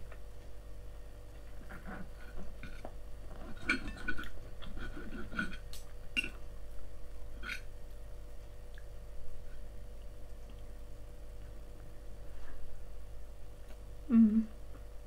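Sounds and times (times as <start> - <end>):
knife and fork clinking on plate: 3.5 - 5.6.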